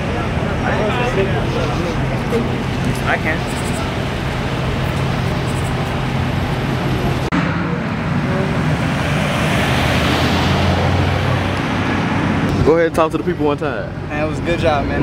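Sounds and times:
road noise: 0.0s - 15.0s
car passing by: 7.2s - 12.7s.

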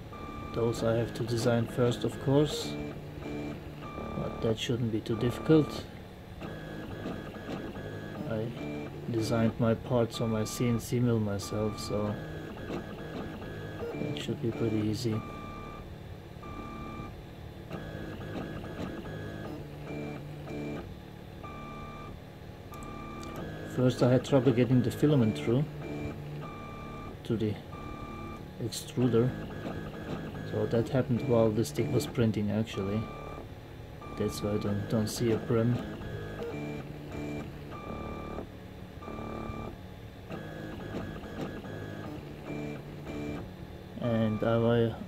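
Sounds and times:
stepper motors singing: 34.0s - 38.4s.

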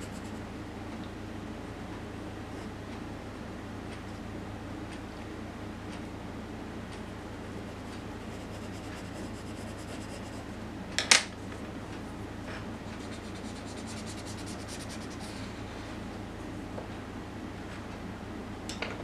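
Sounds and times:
steady low hum: 0.0s - 19.0s
pencil scratching on paper: 7.4s - 10.6s, 12.9s - 15.4s.

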